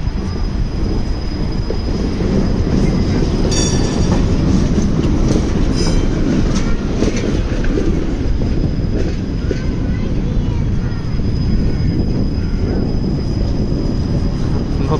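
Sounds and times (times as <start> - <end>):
tram wheels rumbling on rails: 0.0 - 14.9
wheels clicking over track: 0.8 - 11.5.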